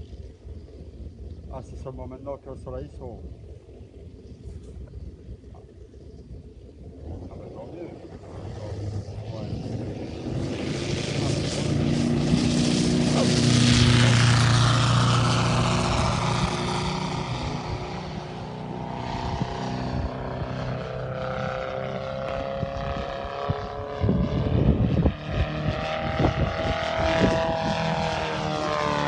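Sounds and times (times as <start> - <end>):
wind buffeting microphone: 0.0 - 29.0
model plane petrol engine: 7.4 - 29.0.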